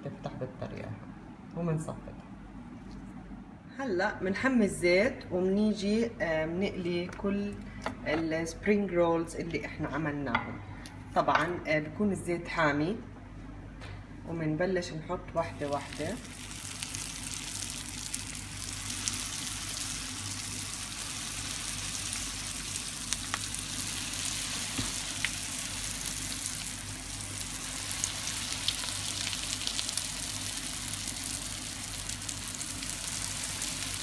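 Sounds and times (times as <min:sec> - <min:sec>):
food sizzling in hot oil: 0:15.6 - 0:34.0.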